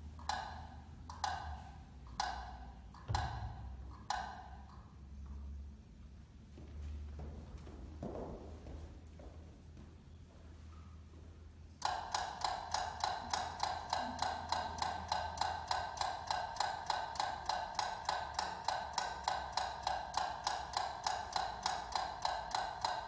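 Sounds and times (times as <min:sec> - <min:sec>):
clock ticking: 0:00.0 - 0:05.0, 0:11.8 - 0:23.0.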